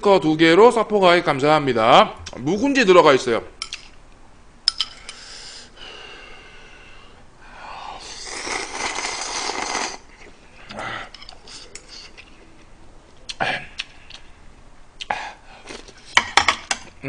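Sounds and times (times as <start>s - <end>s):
person slurping noodles: 8.0s - 12.2s.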